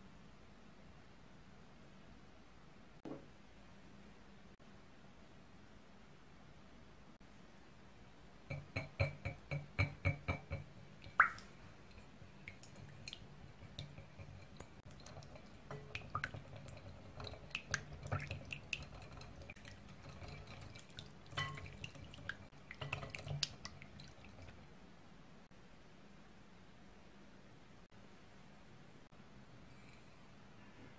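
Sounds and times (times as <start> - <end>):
wet stirring: 8.5 - 24.7
wire whisk clinking against glass bowl: 21.4 - 21.9.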